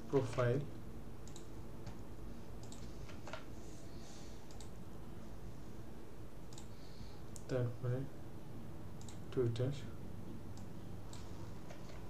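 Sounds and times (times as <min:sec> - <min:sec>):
low background hum: 0:00.0 - 0:12.0.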